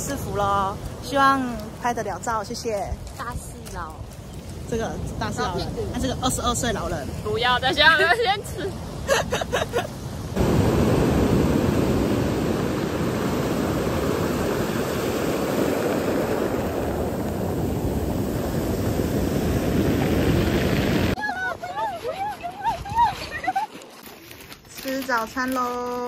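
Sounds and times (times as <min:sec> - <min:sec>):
sea surf washing over pebbles: 0:00.0 - 0:26.0.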